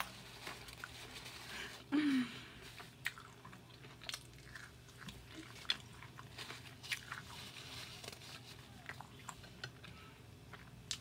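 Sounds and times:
person chewing food: 2.7s - 11.0s.

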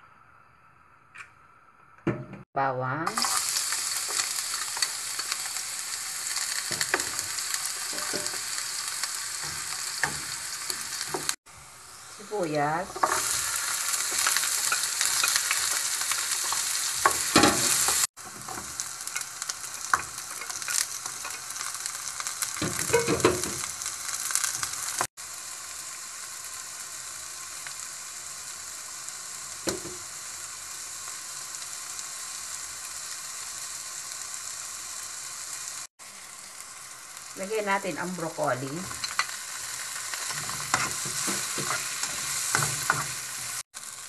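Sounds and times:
vegetables sizzling in hot oil: 2.6s - 44.0s
spatula scraping a pan: 6.7s - 8.5s, 40.1s - 43.6s.

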